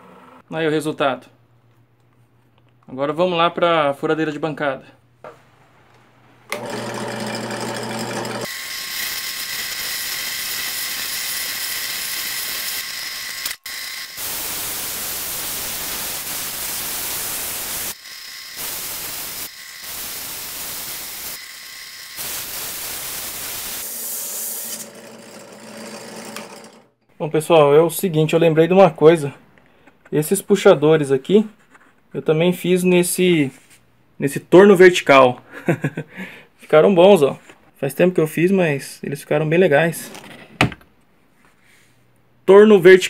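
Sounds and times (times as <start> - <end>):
drill press motor hum: 6.5 - 14.5, 17.9 - 22.4, 23.9 - 26.9
sandpaper hissing against turning wood: 14.2 - 18.0, 18.6 - 21.5, 22.2 - 24.8.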